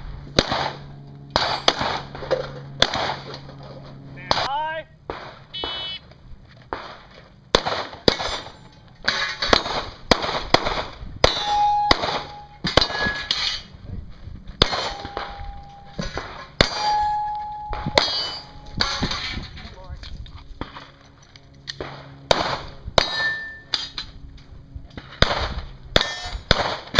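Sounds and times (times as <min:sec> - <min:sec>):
pistol shots: 0:00.4 - 0:02.2, 0:02.8 - 0:03.3, 0:05.1 - 0:05.9, 0:06.7 - 0:13.2, 0:14.6 - 0:16.9, 0:17.7 - 0:19.2, 0:21.8 - 0:23.6, 0:25.0 - 0:26.9
metal target clanging: 0:00.4 - 0:04.5, 0:07.9 - 0:09.9, 0:11.2 - 0:13.7, 0:14.6 - 0:19.9, 0:23.0 - 0:24.2, 0:25.9 - 0:26.9.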